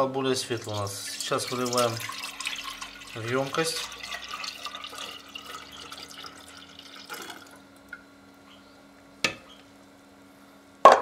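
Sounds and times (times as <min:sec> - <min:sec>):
juice pouring into glass jar: 0:00.4 - 0:08.0.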